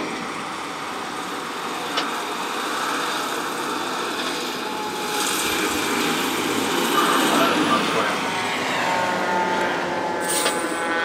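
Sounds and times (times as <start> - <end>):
truck engine and tyre noise: 0.0 - 11.0.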